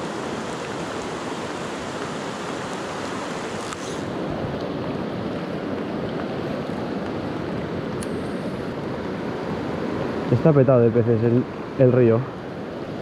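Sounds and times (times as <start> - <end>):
rain falling on water: 0.0 - 12.2
river flowing: 0.0 - 13.0.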